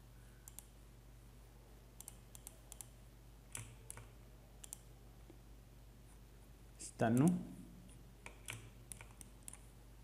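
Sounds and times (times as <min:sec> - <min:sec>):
mouse and keyboard clicks: 0:03.5 - 0:04.9, 0:08.2 - 0:09.7.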